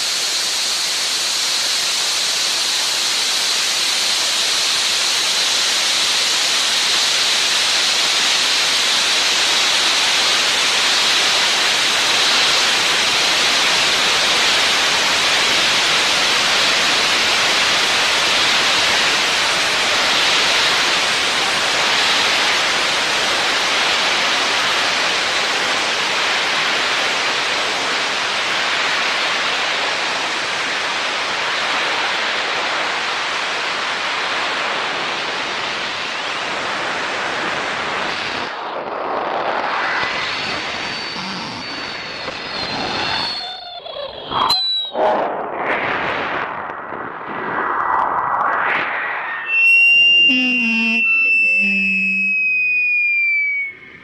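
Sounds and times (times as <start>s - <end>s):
steady rushing hiss: 0.0s - 44.2s
faint high whistling tones: 40.1s - 45.1s, 49.1s - 54.0s.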